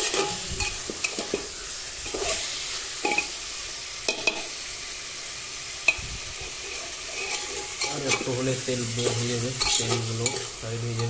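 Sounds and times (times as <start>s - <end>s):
metal spatula scraping a pot: 0.0s - 3.3s, 5.9s - 11.0s
chicken sizzling in hot oil: 0.0s - 11.0s.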